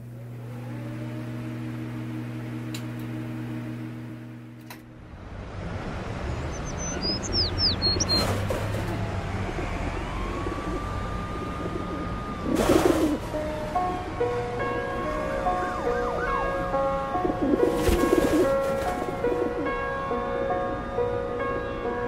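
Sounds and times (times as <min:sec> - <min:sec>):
noisy outdoor ambience: 0:04.0 - 0:22.0
distant siren tone: 0:05.2 - 0:22.0
high falling bird chirps: 0:06.3 - 0:08.4.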